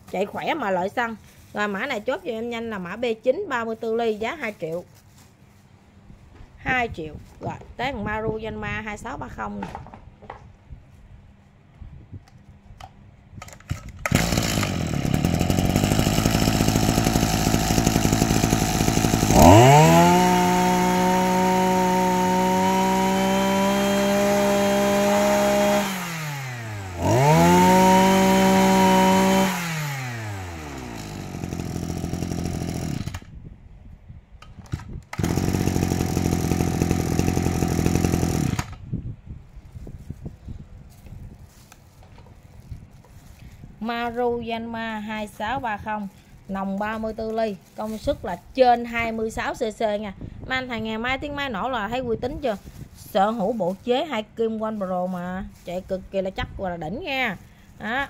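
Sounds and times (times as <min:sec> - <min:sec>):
brush cutter engine revving: 0:13.5 - 0:33.4, 0:34.4 - 0:38.9, 0:45.2 - 0:48.6.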